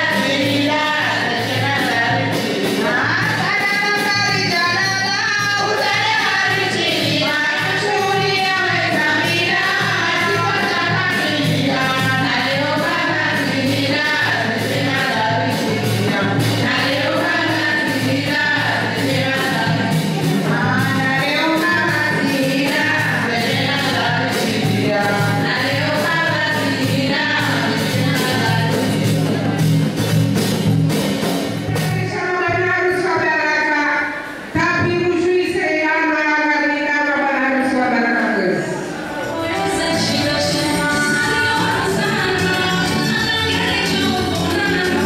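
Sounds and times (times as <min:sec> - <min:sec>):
women singing through microphones: 0:00.0 - 0:29.6, 0:31.7 - 0:45.0
steady drumbeat: 0:00.0 - 0:33.3, 0:39.2 - 0:45.0.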